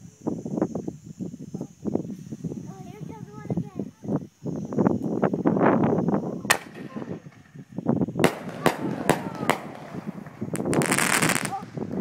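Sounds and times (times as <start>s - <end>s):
fireworks bursting: 6.4s - 12.0s.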